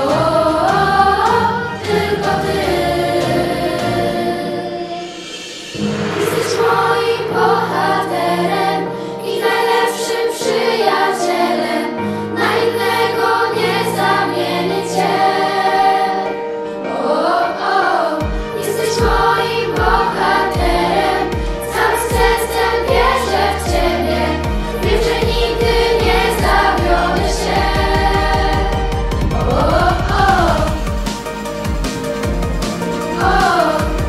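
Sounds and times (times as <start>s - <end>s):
girls' choir singing: 0.0s - 31.0s, 33.0s - 34.0s
steady drum beat: 22.2s - 34.0s
backing track bass notes: 23.0s - 34.0s.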